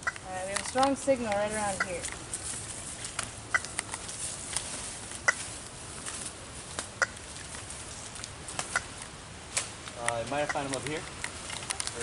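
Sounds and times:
sharp clicks: 0:00.0 - 0:02.2, 0:03.1 - 0:04.0, 0:08.2 - 0:12.0.

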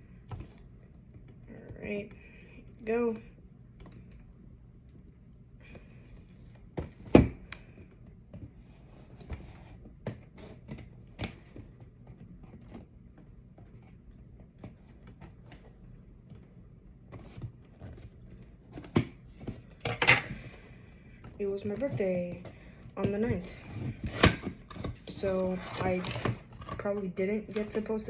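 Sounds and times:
cardboard box and packaging handled: 0:06.3 - 0:19.8, 0:21.4 - 0:27.9.

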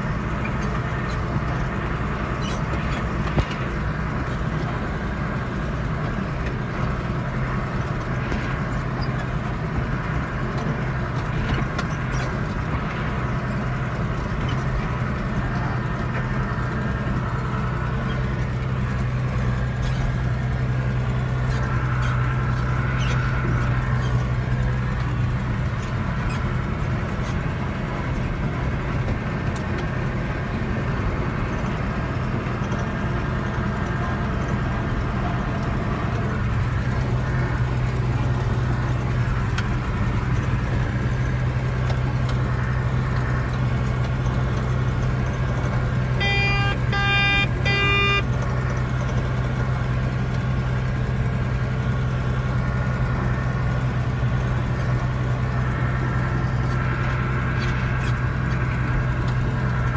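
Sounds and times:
tractor engine droning: 0:00.0 - 0:59.9
short electronic beeps: 0:46.2 - 0:48.3.

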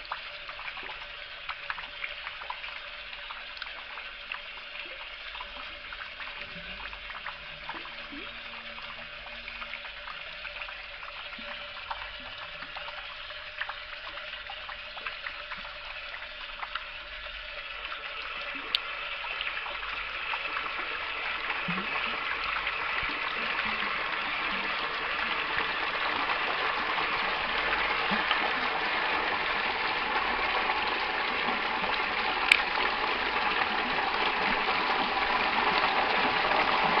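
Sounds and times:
tap water splashing into basin: 0:18.5 - 0:37.0.

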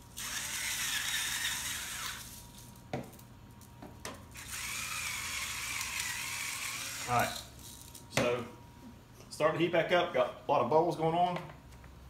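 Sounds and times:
grinder motor whine: 0:04.4 - 0:07.5.

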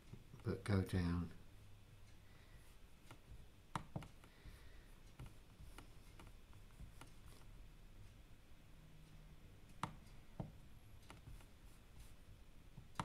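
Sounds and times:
computer mouse clicks: 0:03.0 - 0:04.3, 0:05.1 - 0:07.5, 0:09.7 - 0:11.6.

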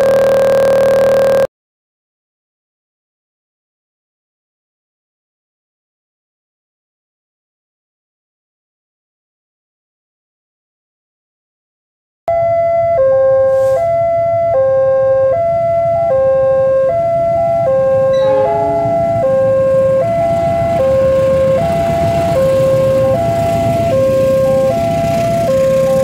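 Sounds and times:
train rumbling past: 0:17.2 - 0:26.0
level crossing two-tone bell: 0:18.1 - 0:20.7.

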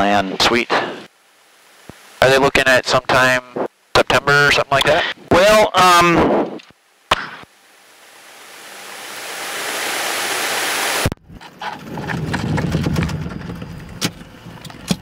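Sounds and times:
microphone hiss: 0:00.0 - 0:11.1.

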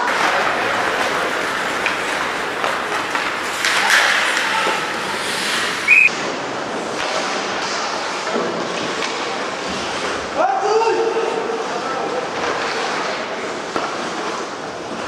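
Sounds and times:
hockey sticks clicking: 0:00.0 - 0:06.1
skates scraping on ice: 0:00.0 - 0:06.1.

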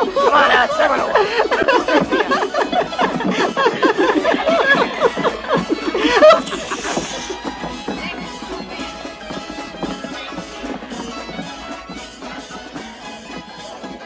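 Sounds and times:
background music: 0:00.0 - 0:14.0
man laughing: 0:01.2 - 0:07.3.

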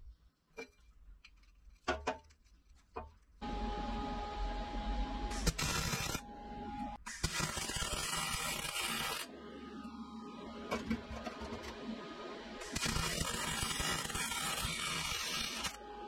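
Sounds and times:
welding arc crackling: 0:05.3 - 0:06.2, 0:07.0 - 0:09.3, 0:12.6 - 0:15.8.

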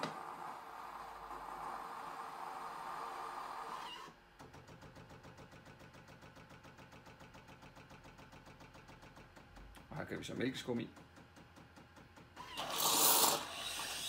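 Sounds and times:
coffee machine hissing: 0:00.0 - 0:04.0, 0:12.4 - 0:14.0
coffee machine pump pulsing: 0:12.4 - 0:14.0.

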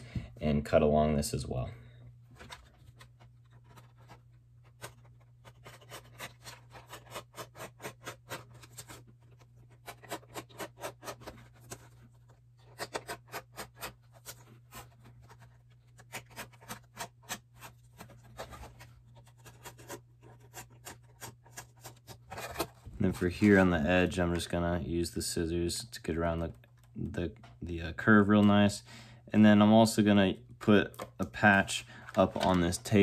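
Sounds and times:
knife scraping along tape: 0:04.8 - 0:12.0, 0:12.6 - 0:15.4.

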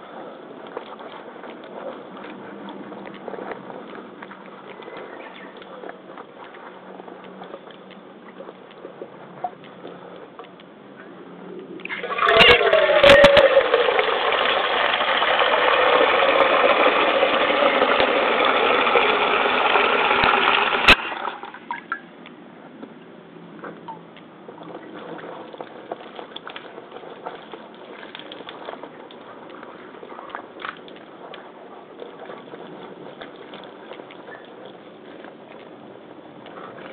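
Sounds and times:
rush of running water: 0:11.9 - 0:21.8.

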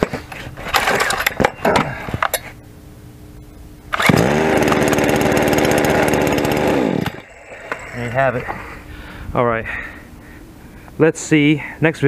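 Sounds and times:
chainsaw starter pull: 0:03.9 - 0:08.3
chainsaw engine running: 0:03.9 - 0:08.6.

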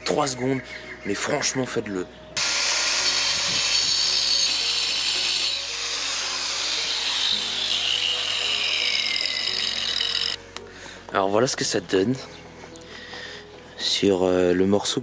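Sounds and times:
angle grinder cutting stone: 0:02.4 - 0:10.4.

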